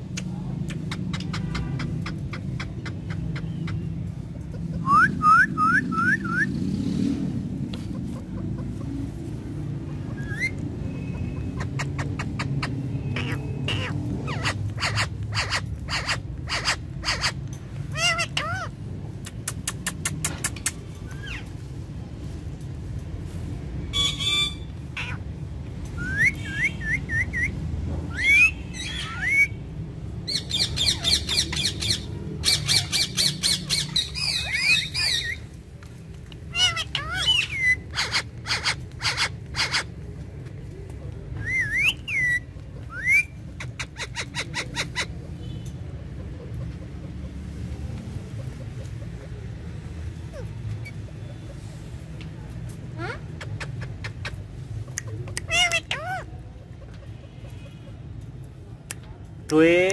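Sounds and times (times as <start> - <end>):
parakeet squawks: 0.8 - 3.9, 9.9 - 18.8, 23.9 - 25.3, 30.3 - 35.4, 36.5 - 40.0, 53.0 - 56.4
parakeet chirps: 9.9 - 21.5, 28.1 - 29.6, 30.3 - 35.5, 36.5 - 40.0, 53.0 - 56.4.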